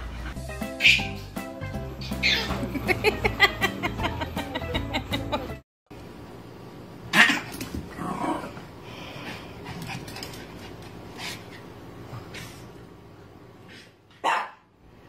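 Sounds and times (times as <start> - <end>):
puppy barking: 0.8 - 1.2, 14.2 - 14.7.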